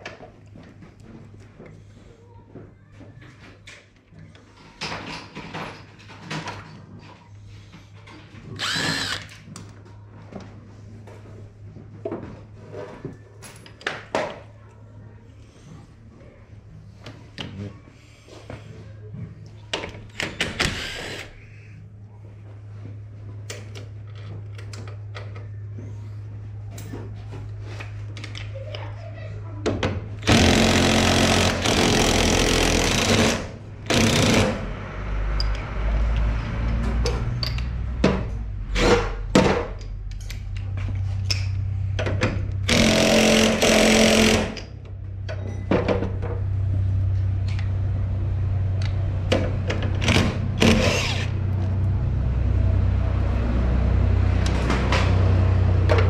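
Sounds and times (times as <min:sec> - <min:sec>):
power tool bursts: 0:08.6 - 0:09.3, 0:30.2 - 0:34.6, 0:42.7 - 0:44.6.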